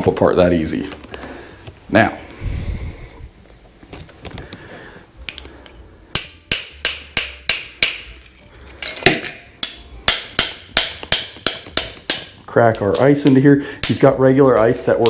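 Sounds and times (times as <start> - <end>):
tool tapping ice cube: 6.2 - 8.2, 9.1 - 15.0.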